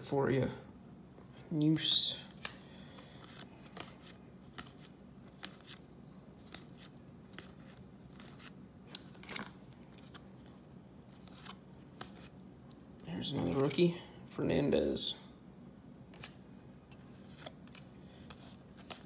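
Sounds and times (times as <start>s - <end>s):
low steady hum: 0.0s - 19.0s
cards being flipped by hand: 2.3s - 5.8s, 6.4s - 12.4s, 16.1s - 19.0s.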